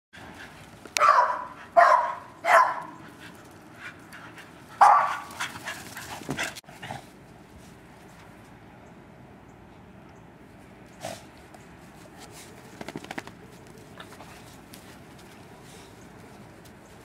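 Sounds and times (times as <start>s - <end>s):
dogs barking: 1.0s - 3.1s, 4.8s - 5.8s.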